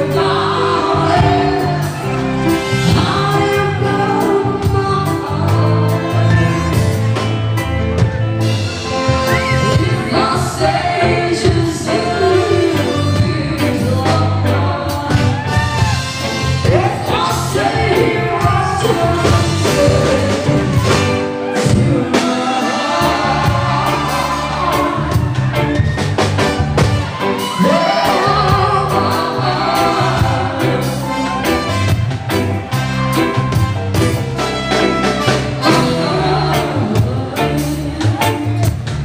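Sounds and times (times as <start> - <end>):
woman singing into a microphone: 0.0 - 2.2, 2.9 - 6.6, 9.5 - 15.7, 35.6 - 38.6
live reggae band playing: 0.0 - 39.0.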